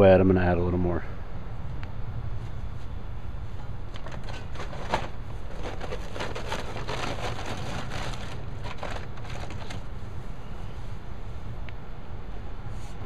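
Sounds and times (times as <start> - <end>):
steady low rumble: 0.0 - 13.0
dry mortar mix scraping: 4.1 - 9.8.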